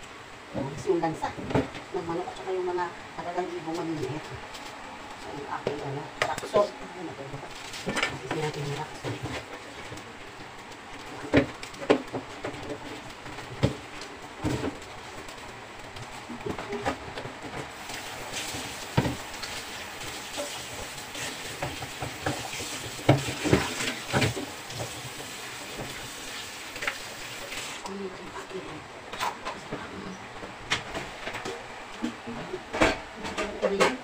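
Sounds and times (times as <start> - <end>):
tap water running: 17.7 - 27.9
wet rubbing of chicken: 17.7 - 27.9.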